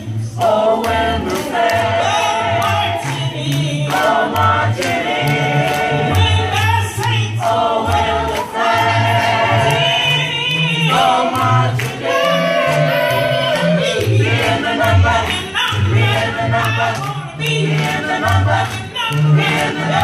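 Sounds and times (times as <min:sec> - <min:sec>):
low bass vocal line: 0:00.0 - 0:20.0
vocal group singing in harmony: 0:00.0 - 0:20.0.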